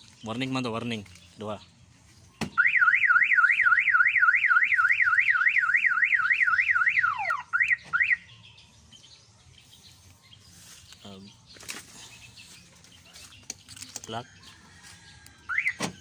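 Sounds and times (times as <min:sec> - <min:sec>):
car alarm siren warbling: 0:02.6 - 0:08.3, 0:15.5 - 0:16.0.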